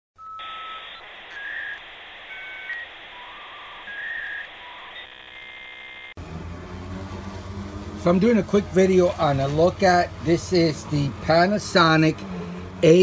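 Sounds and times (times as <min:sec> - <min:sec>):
whistle-like tones: 0:00.2 - 0:05.1
buzz: 0:00.4 - 0:13.0.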